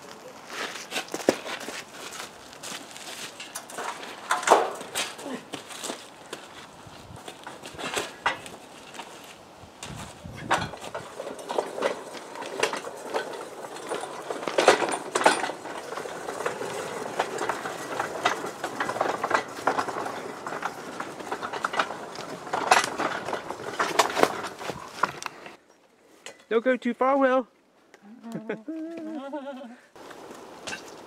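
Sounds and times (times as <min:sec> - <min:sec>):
rail wagon rattling and knocking: 0:10.4 - 0:25.0.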